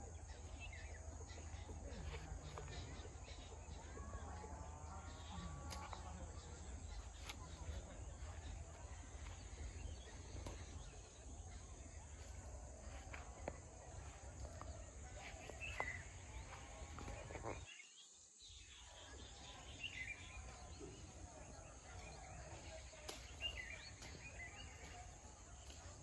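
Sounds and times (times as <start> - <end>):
faint bird chirps: 0.0 - 26.0.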